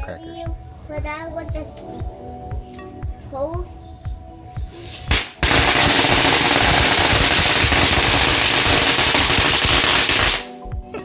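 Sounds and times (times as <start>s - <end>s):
firecrackers crackling: 5.1s - 10.5s.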